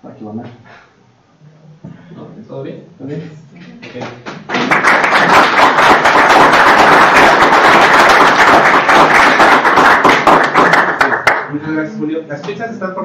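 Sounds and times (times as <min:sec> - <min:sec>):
audience applauding: 0:04.4 - 0:11.5.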